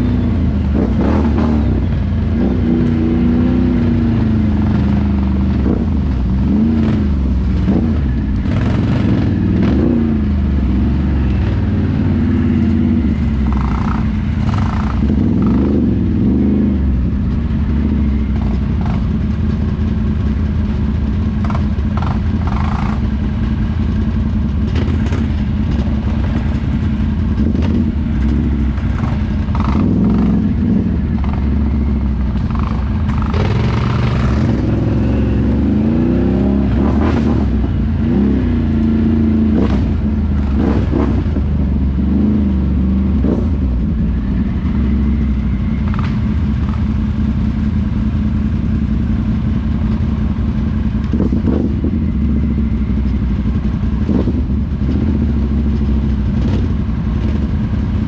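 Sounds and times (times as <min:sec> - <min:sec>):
atv engine revving: 0:00.0 - 0:20.4, 0:21.4 - 0:58.0.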